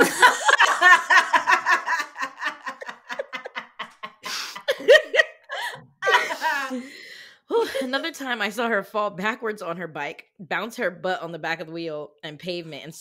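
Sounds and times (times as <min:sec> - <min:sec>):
women laughing hard: 0:00.0 - 0:06.9
breathy gasp: 0:06.7 - 0:07.5.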